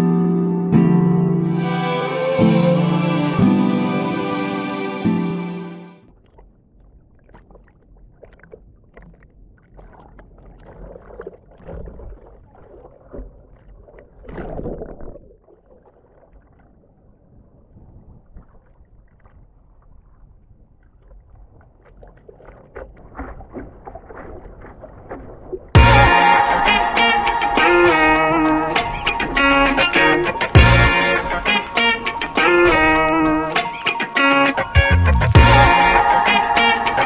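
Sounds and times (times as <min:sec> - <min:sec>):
sea water sloshing and splashing: 0:06.0 - 0:34.8.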